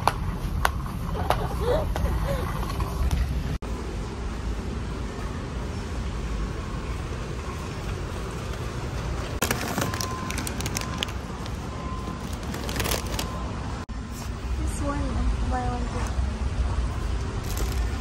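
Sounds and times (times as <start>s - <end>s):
low rumble of store background: 0.0s - 18.0s.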